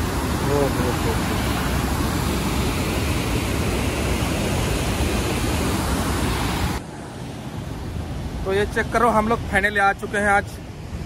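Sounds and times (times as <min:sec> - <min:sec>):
water rushing out of dam gate: 0:00.0 - 0:06.8.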